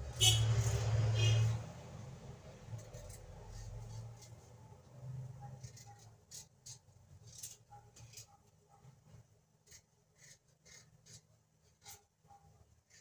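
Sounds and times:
knife scraping potato: 2.7s - 8.9s, 9.6s - 13.0s.

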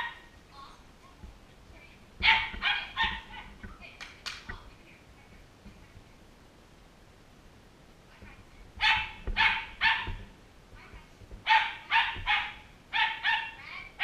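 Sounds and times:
small dog barking: 0.0s - 0.3s, 2.2s - 3.6s, 8.8s - 10.3s, 11.4s - 14.0s.

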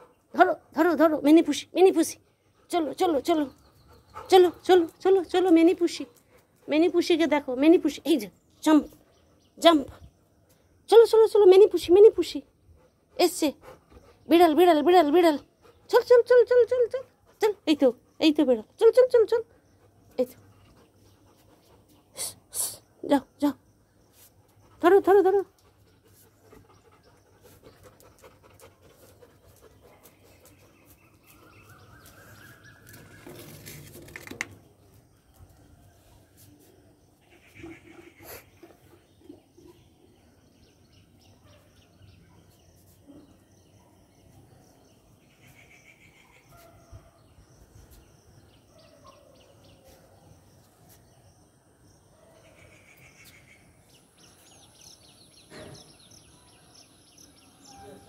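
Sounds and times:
faint dog panting: 1.9s - 7.4s, 12.0s - 18.4s, 19.2s - 22.9s, 24.1s - 32.8s, 36.2s - 43.1s.

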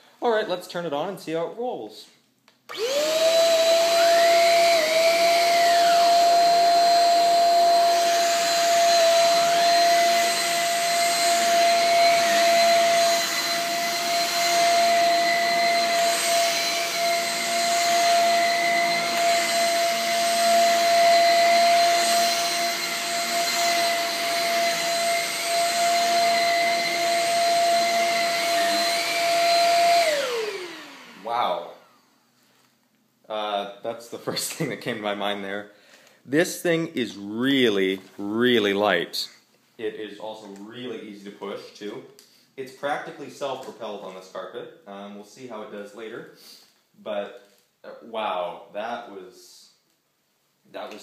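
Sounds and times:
vacuum cleaner running on carpet: 2.7s - 31.9s
vacuum motor spinning down: 2.7s - 32.0s.

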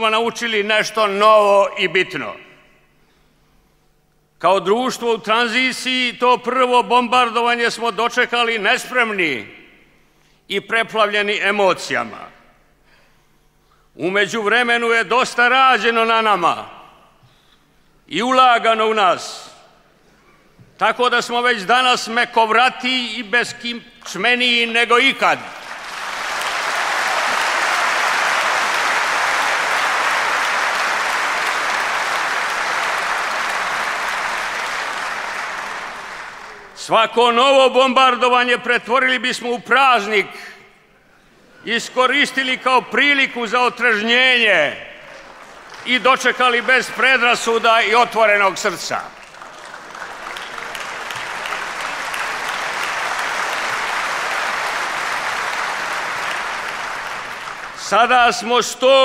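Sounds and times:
audience applauding: 25.4s - 36.8s, 45.0s - 57.9s.

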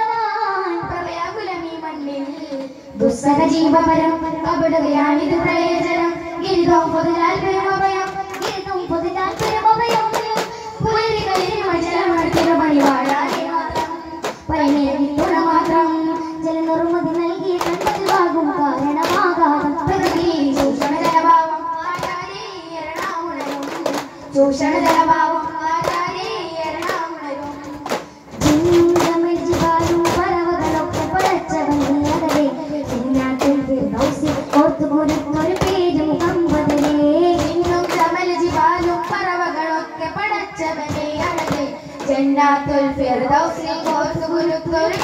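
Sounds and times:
boys singing in chorus: 2.6s - 45.0s
frame drum strikes: 5.3s - 39.6s.

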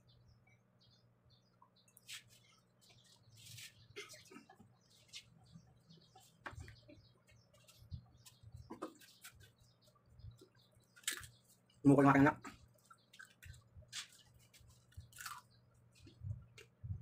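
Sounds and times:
eating clicks and smacks: 12.8s - 16.8s.

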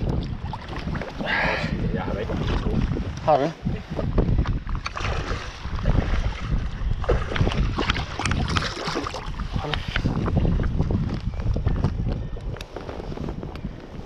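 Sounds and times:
sea water lapping and splashing: 0.0s - 10.9s
wind rumbling on microphone: 0.0s - 14.0s.

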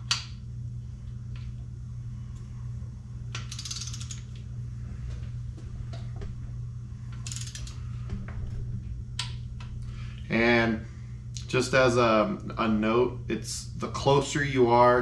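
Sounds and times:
torque wrench ratchet clicking: 3.3s - 4.3s, 7.2s - 7.8s
single ratchet clicks: 3.3s - 4.4s, 7.2s - 7.8s.

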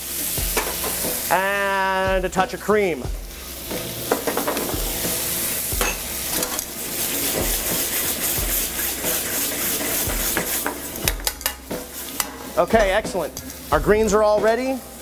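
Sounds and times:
gravy sizzling in a skillet: 0.0s - 15.0s
metal tongs scraping a pan: 0.6s - 1.3s, 3.3s - 13.7s.

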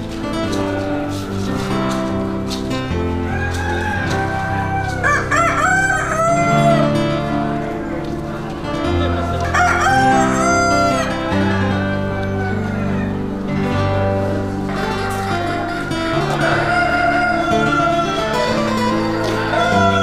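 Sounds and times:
guitar music: 0.0s - 20.0s
rooster crowing: 3.2s - 7.0s, 9.1s - 13.4s, 14.8s - 20.0s.

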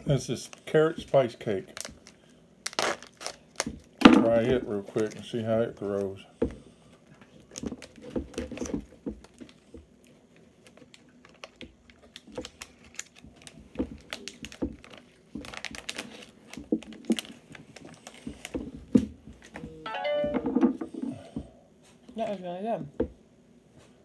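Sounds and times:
plastic wrapper crackling: 0.4s - 4.0s, 4.8s - 6.1s, 7.4s - 9.6s, 10.4s - 18.7s.

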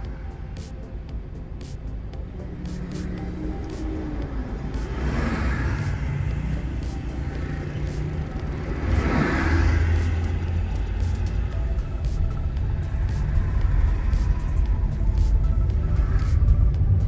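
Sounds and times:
engine and tyre rumble: 0.0s - 17.0s
passing traffic: 0.0s - 17.0s.

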